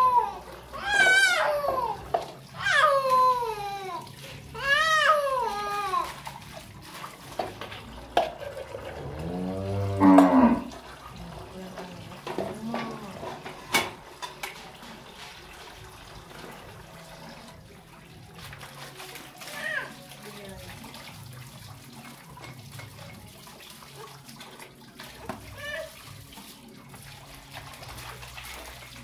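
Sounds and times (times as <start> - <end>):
cow mooing: 8.7 - 10.8.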